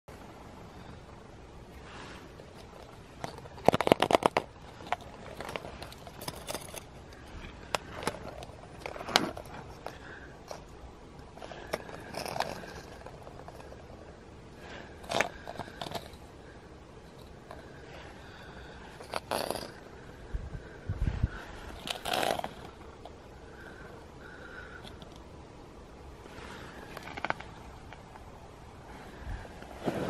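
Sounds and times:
plastic eggs clicking on asphalt: 0:02.6 - 0:13.8, 0:19.0 - 0:19.8, 0:26.9 - 0:28.3.

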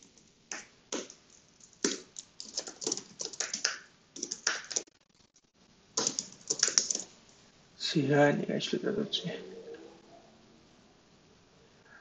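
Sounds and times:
typing on computer keyboard: 0:00.0 - 0:05.4, 0:06.0 - 0:07.1.

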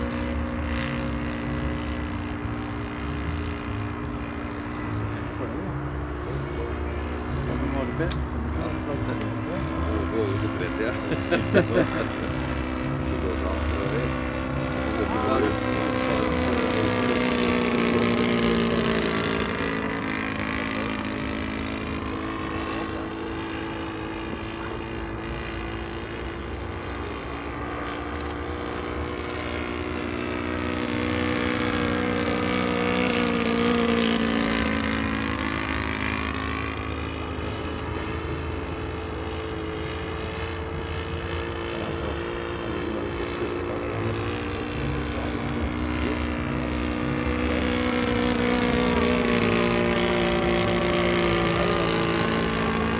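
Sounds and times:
model airplane engine and propeller: 0:00.0 - 0:52.9.

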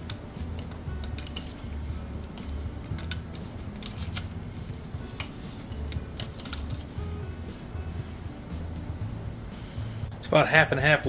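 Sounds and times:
small metal parts clinking: 0:00.1 - 0:04.4, 0:05.1 - 0:06.9.

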